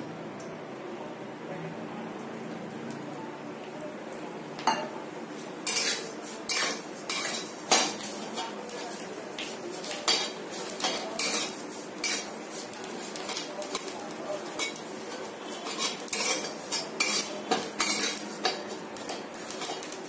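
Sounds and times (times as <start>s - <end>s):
metal spatula scraping a pan: 5.6s - 9.1s, 9.7s - 20.0s.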